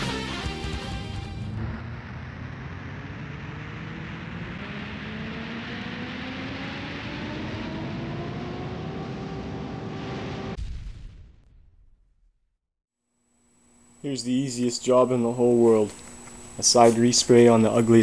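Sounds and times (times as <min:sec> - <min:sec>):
rising whine: 0:00.0 - 0:10.6, 0:13.3 - 0:18.0
loud rushing noise: 0:01.0 - 0:10.6.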